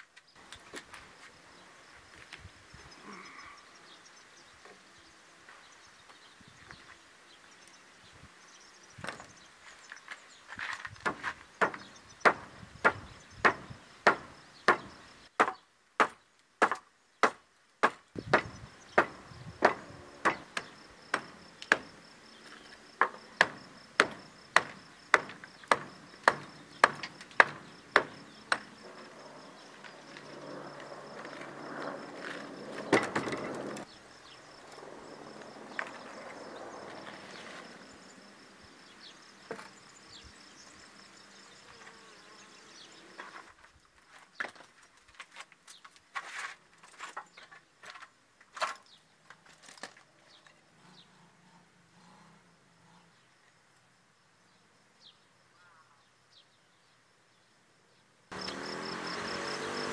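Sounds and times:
insect chirring: 18.2s - 44.2s, 57.1s - 59.9s
hammer knocking on wooden battens: 23.0s - 28.7s.

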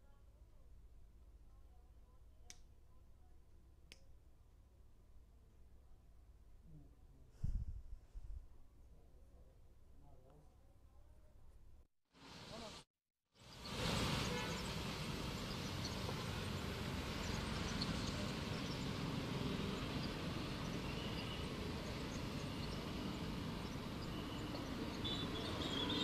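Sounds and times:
rushing storm noise: 13.4s - 26.0s.

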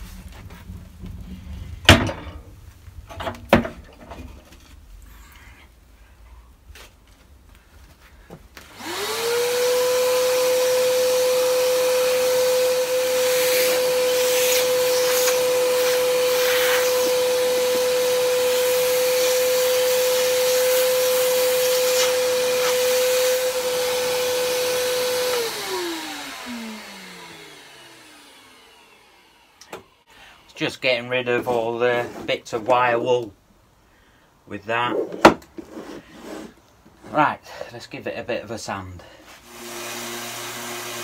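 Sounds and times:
vacuum cleaner whining: 8.6s - 30.5s, 39.2s - 41.0s.

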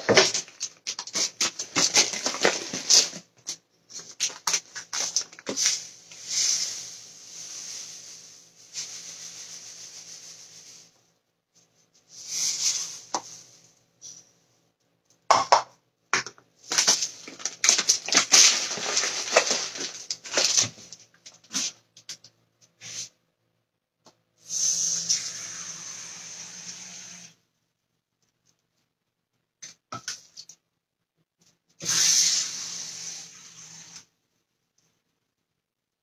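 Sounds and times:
paper bag crinkling: 0.0s - 5.8s, 16.7s - 21.0s
grains pouring: 4.3s - 10.8s, 16.7s - 20.7s.

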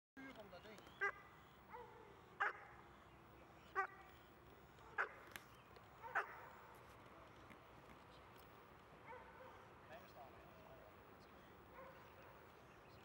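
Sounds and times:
puppy barking: 1.0s - 2.8s, 5.0s - 5.2s, 6.0s - 6.6s, 9.1s - 9.6s.

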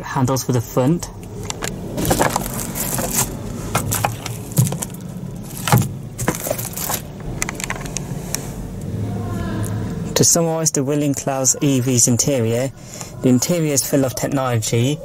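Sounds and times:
low steady hum: 0.0s - 15.0s
plastic film crinkling: 1.4s - 7.9s
sun visor clicks and knocks: 5.6s - 7.9s.

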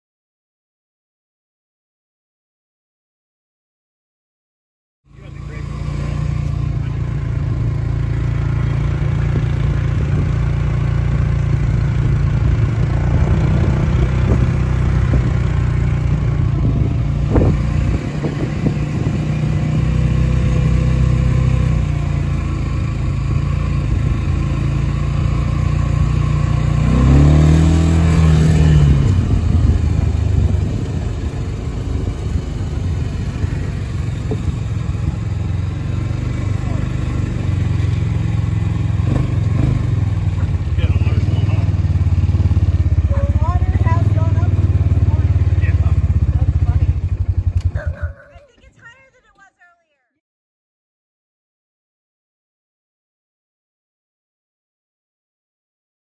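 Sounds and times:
small vehicle engine running: 5.1s - 49.0s.

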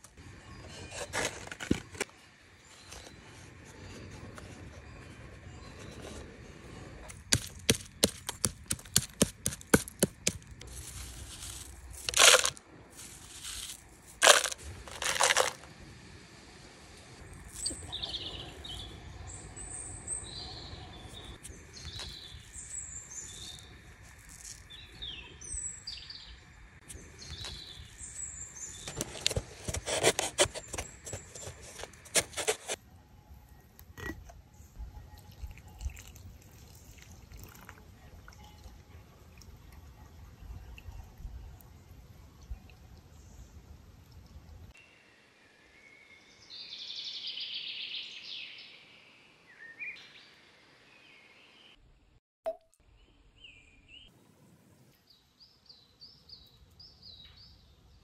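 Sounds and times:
small birds chirping: 17.3s - 29.6s.

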